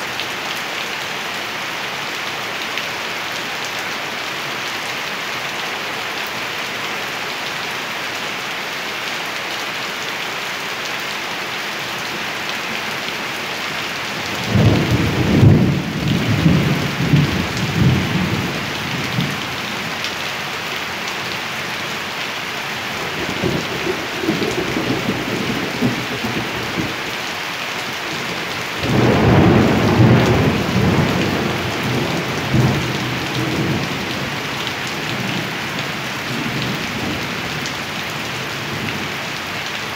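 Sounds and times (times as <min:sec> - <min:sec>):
steady rain: 0:00.0 - 0:39.9
thunder rumbling: 0:14.4 - 0:19.5, 0:23.0 - 0:27.0, 0:28.8 - 0:34.4.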